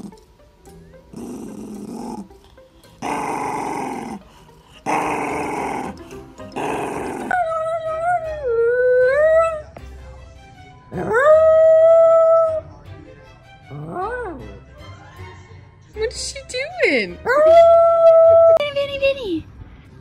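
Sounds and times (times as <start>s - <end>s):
dog growling grumbles: 1.1s - 2.4s, 3.0s - 7.5s, 13.7s - 14.4s
dog howling: 6.8s - 9.7s, 10.9s - 12.6s, 13.7s - 14.5s.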